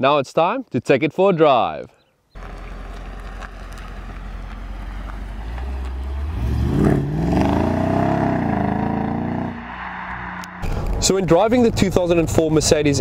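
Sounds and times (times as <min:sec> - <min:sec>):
car engine revving and accelerating: 0:02.4 - 0:10.8.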